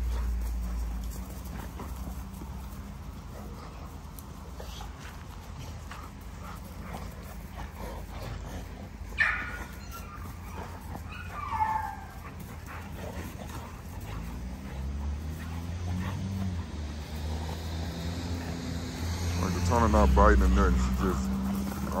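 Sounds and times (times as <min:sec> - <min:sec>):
dogs play-fighting: 0:00.0 - 0:22.0
dog whining: 0:09.1 - 0:12.4
dog yelping: 0:09.1 - 0:12.9.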